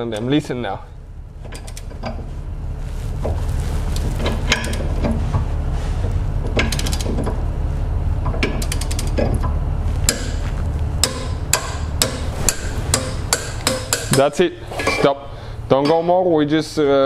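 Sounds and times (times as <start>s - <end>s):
steady low hum: 0.0s - 17.0s
torque wrench clicking: 8.3s - 9.4s.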